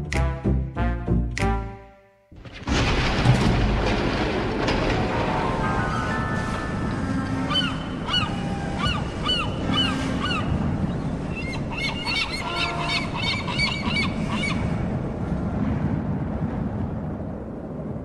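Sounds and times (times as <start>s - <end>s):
wind and sea rushing: 2.4s - 18.0s
seagulls crying: 6.8s - 14.7s.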